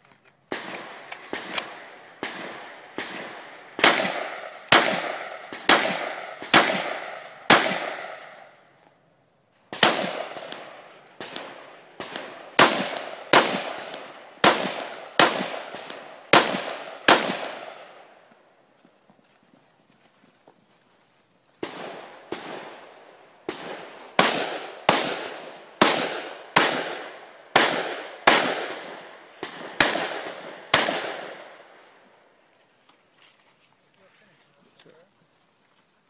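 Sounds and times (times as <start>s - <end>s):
rifle shots with echo: 0.5s - 8.5s, 9.7s - 18.2s, 21.6s - 31.8s.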